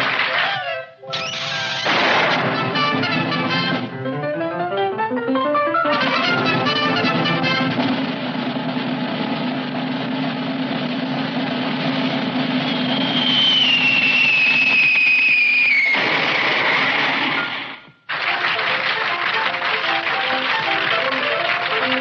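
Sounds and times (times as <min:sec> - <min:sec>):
falling whistle: 0:01.1 - 0:01.9, 0:12.5 - 0:16.0
noisy impact: 0:01.8 - 0:03.9, 0:07.6 - 0:14.9, 0:15.8 - 0:18.0
drum roll: 0:01.9 - 0:04.0, 0:05.9 - 0:14.9, 0:15.9 - 0:22.0.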